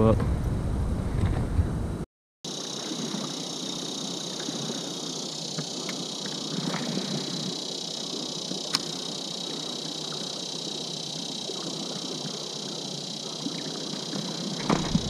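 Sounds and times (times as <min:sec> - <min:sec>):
high-pitched hum: 0:02.5 - 0:15.0.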